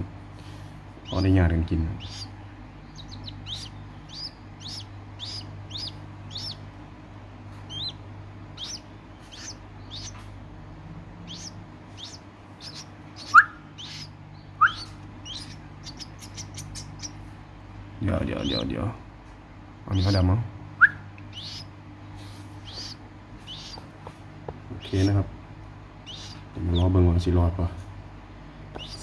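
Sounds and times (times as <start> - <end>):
bird chicks peeping: 0.4 - 29.0
louder lower bird calls: 1.0 - 6.7, 7.7 - 10.3, 11.2 - 17.3, 20.8 - 24.0, 26.0 - 26.9, 28.8 - 29.0.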